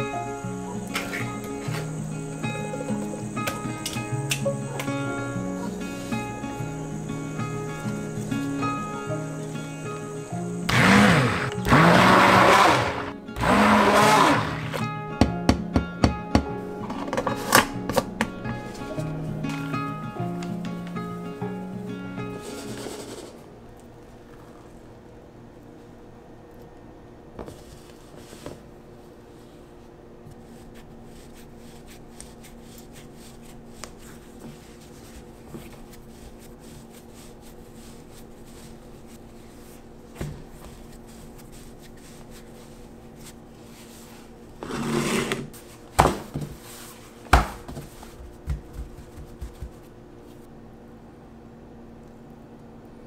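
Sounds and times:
faint steady hum: 0.0s - 13.5s, 45.4s - 53.0s
hands patting pizza dough: 45.9s - 50.0s.

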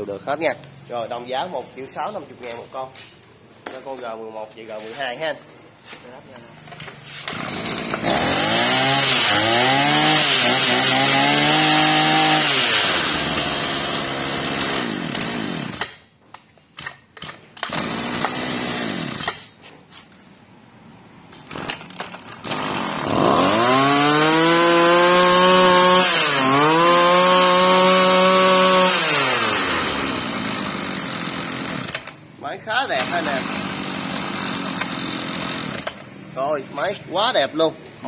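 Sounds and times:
brush cutter engine revving: 6.8s - 16.0s, 17.2s - 19.5s, 21.5s - 32.2s, 32.8s - 36.1s.

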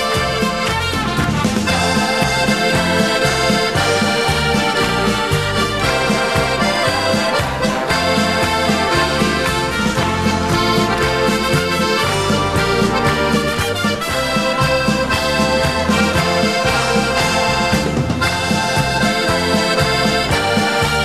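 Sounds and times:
accordion melody: 0.0s - 21.0s
pulsing bass line: 0.0s - 21.0s.

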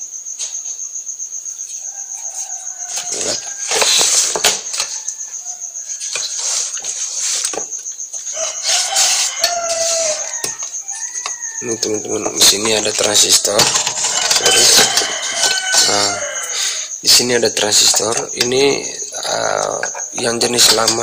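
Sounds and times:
cricket chirping: 0.0s - 21.0s
chickens calling: 1.8s - 21.0s
noisy rustling bursts: 6.0s - 10.4s.

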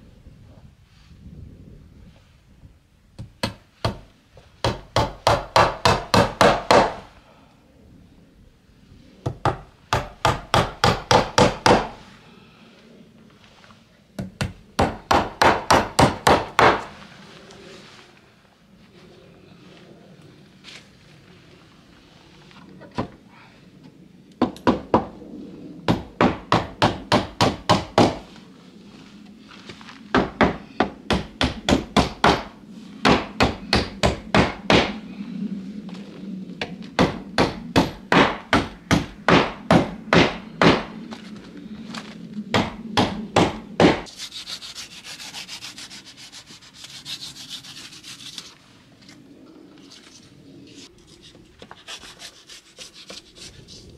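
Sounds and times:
knife scraping foam: 44.1s - 48.6s, 49.9s - 53.9s.

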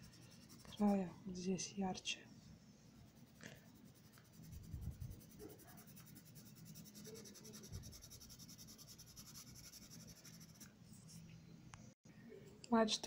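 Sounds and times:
pencil scratching on paper: 0.0s - 1.0s, 3.0s - 10.7s.

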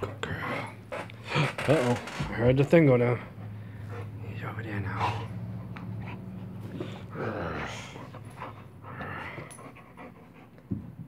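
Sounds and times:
puppy panting: 2.4s - 11.0s.

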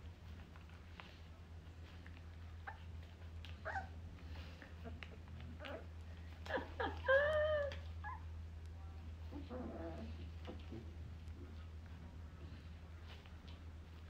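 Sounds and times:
puppy whining: 2.5s - 8.4s, 9.2s - 10.7s.

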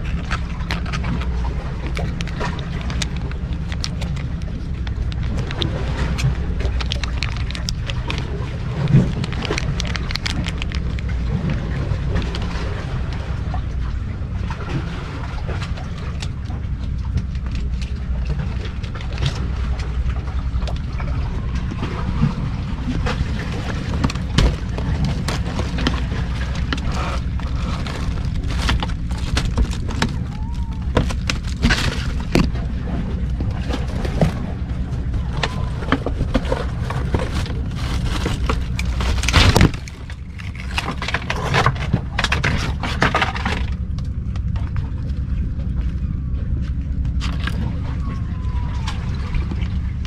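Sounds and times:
low rumble: 0.0s - 50.0s
camera brushing against sticks: 23.4s - 32.6s, 36.1s - 41.8s.

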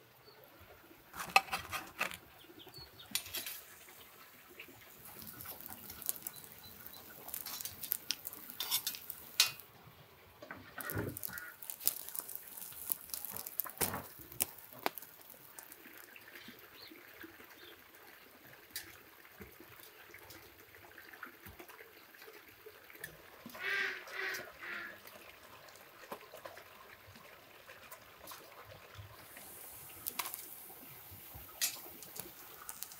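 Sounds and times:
metal tongs clinking on grill grate: 3.1s - 3.7s, 5.0s - 9.6s, 29.7s - 32.9s.

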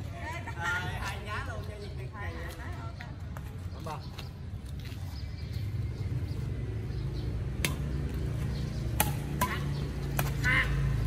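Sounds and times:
rackets hitting shuttlecock: 7.5s - 11.0s.

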